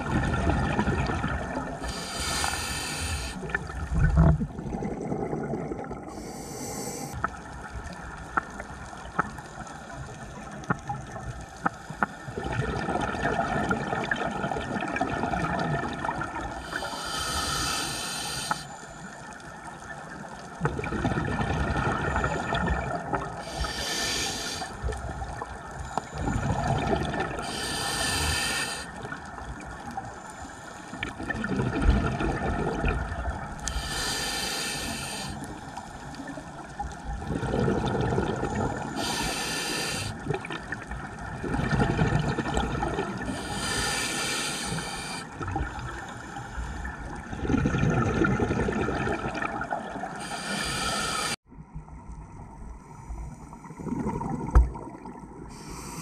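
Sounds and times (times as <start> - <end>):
exhaled bubbles: 0.0 - 7.2, 12.3 - 17.6, 20.5 - 30.0, 31.0 - 35.6, 36.2 - 46.2, 46.8 - 51.4, 53.6 - 55.6
regulator inhale hiss: 1.8 - 3.6, 6.1 - 7.2, 16.6 - 19.2, 23.4 - 25.0, 27.4 - 29.2, 30.0 - 31.2, 33.6 - 36.3, 38.8 - 40.2, 43.3 - 47.2, 50.2 - 51.4, 55.5 - 56.0.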